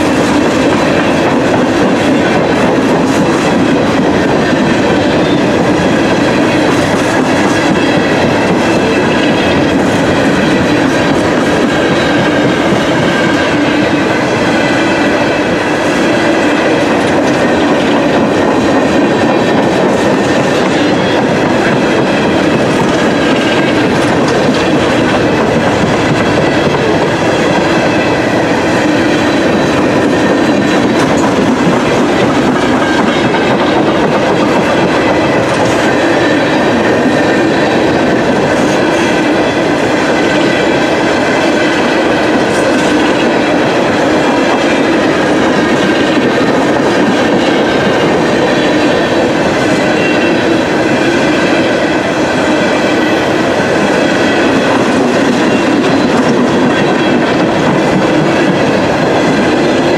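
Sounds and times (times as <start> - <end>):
wheels clacking over rail joints: 0.0 - 51.6
freight train rumbling past: 0.0 - 59.9.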